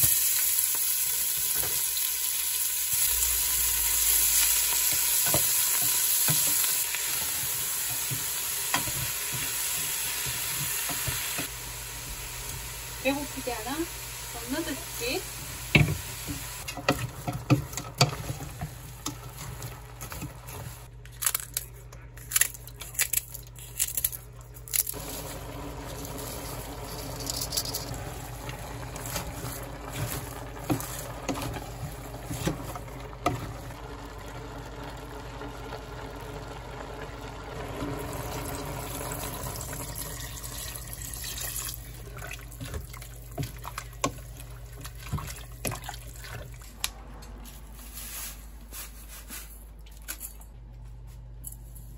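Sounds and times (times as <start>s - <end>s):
vegetables sizzling and bubbling: 0.0s - 20.9s, 24.8s - 49.0s
wooden spoon scraping a pot: 26.0s - 33.8s.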